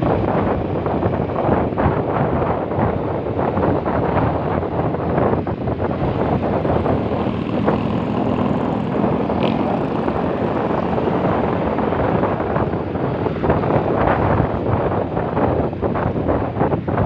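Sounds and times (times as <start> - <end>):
wind buffeting microphone: 0.0 - 17.0
scooter engine: 5.8 - 14.6.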